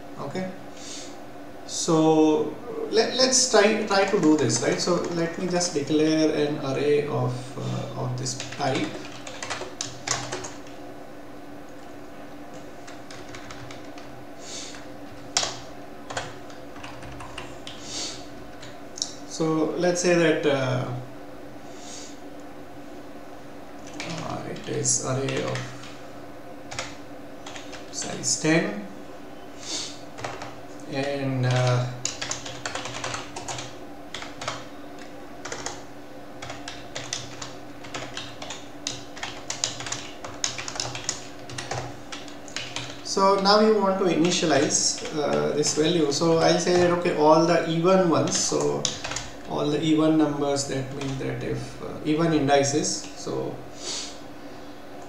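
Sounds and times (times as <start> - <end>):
faint steady hum: 0.0 - 55.0
computer keyboard typing: 3.8 - 5.7, 8.3 - 10.8, 12.8 - 14.1, 14.7 - 17.8, 23.8 - 26.0, 26.7 - 28.2, 30.2 - 35.8, 36.4 - 47.1, 48.0 - 49.5, 50.9 - 51.2.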